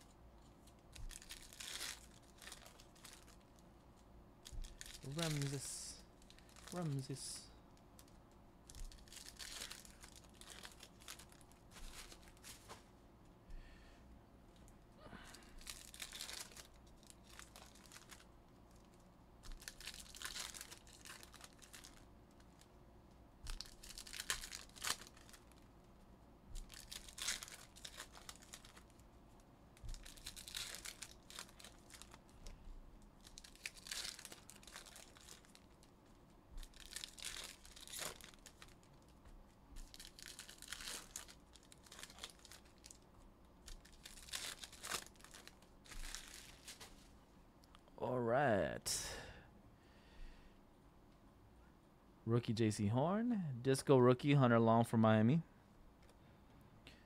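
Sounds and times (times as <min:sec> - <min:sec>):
foil wrappers tearing and crinkling: 0:00.9 - 0:03.5, 0:04.4 - 0:07.4, 0:08.0 - 0:12.6, 0:15.6 - 0:22.7, 0:23.4 - 0:25.7, 0:26.5 - 0:29.0, 0:29.8 - 0:32.3, 0:33.2 - 0:36.0, 0:36.6 - 0:39.2, 0:39.8 - 0:43.0, 0:43.6 - 0:47.0.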